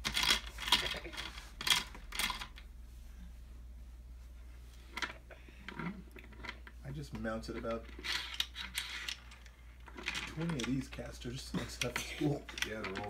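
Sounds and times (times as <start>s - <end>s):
plastic toy parts clacking: 0.0s - 2.6s, 7.6s - 10.8s, 11.8s - 13.0s.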